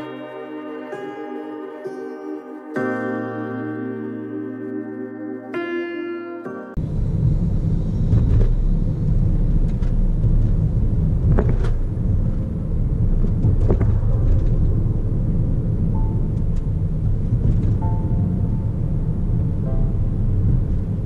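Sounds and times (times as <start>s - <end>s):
car road and engine rumble: 6.8s - 21.0s.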